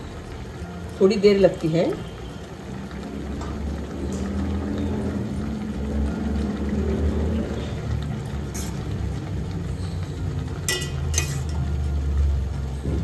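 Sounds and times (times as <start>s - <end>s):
water boiling in a pot: 0.0s - 13.0s
metal spoon clinking on pot: 8.1s - 8.9s, 10.6s - 11.7s.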